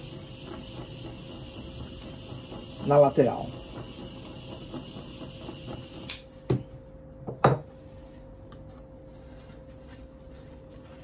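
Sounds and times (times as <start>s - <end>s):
blowtorch hissing: 0.0s - 6.3s
blowtorch click: 5.7s - 6.3s.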